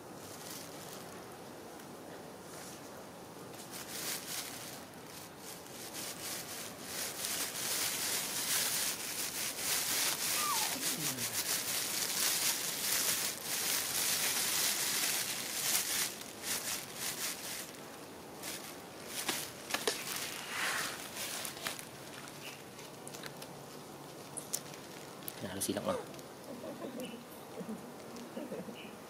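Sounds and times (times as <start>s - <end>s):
rustling on plastic mat: 0.1s - 1.3s, 3.5s - 26.3s
monkey squeak: 10.3s - 11.0s.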